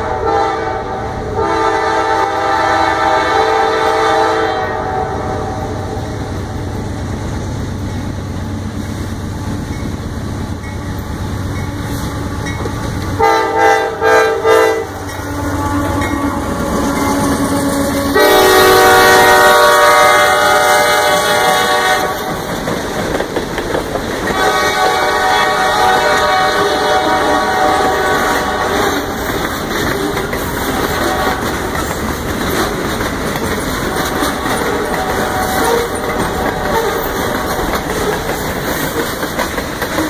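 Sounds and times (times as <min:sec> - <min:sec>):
train air horn blasts: 0:00.0 - 0:06.0, 0:13.2 - 0:22.4, 0:24.3 - 0:29.2, 0:30.8 - 0:31.6, 0:34.6 - 0:37.2
train rumbling: 0:00.0 - 0:40.0.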